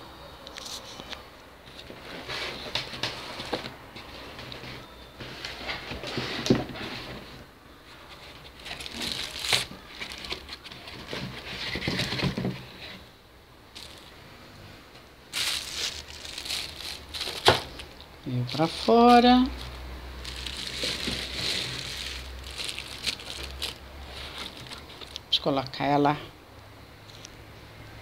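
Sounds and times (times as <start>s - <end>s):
plastic bag crinkling: 8.2s - 12.4s, 13.7s - 14.2s, 15.3s - 25.4s
pulp trays rubbing and knocking: 8.2s - 13.0s, 20.3s - 25.2s.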